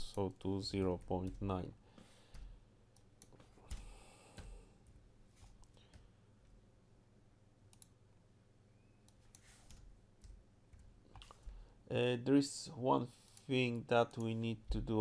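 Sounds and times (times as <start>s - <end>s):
faint mouse and keyboard clicks: 7.7s - 8.0s.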